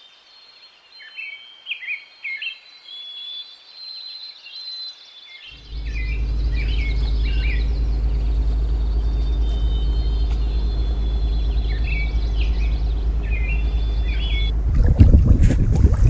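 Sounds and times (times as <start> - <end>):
small bird chirping: 0.4 - 14.6
low motor drone: 5.6 - 16.0.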